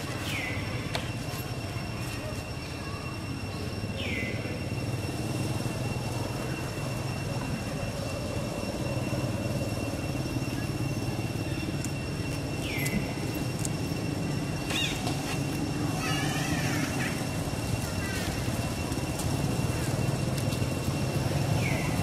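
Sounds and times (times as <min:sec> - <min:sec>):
thin high whine: 0:00.0 - 0:22.0.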